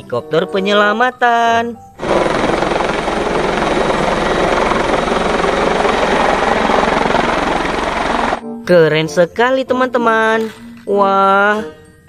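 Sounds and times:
helicopter engine noise: 0:02.0 - 0:08.4
helicopter rotor chopping: 0:02.0 - 0:08.4.

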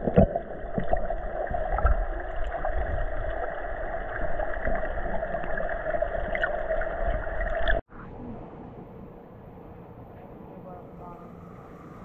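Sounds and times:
underwater hiss and rumble: 0:00.0 - 0:07.8.

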